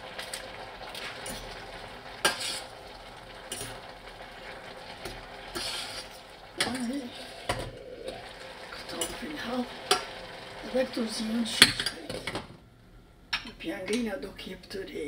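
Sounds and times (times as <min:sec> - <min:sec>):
steaming pan hissing: 0:00.0 - 0:12.3
metal spoon stirring in saucepan: 0:02.2 - 0:02.8, 0:05.0 - 0:07.7.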